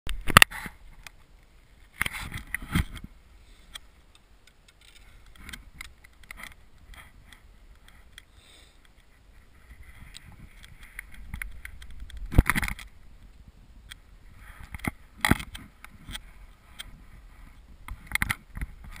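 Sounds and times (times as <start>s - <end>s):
camera handling rubbing: 4.5s - 13.0s.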